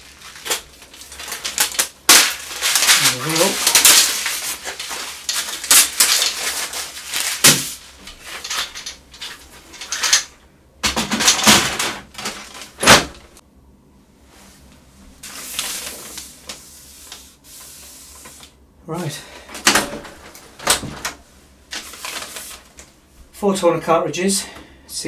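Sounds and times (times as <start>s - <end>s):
packing material rustling: 0.0s - 13.3s, 15.2s - 18.5s, 20.1s - 22.9s.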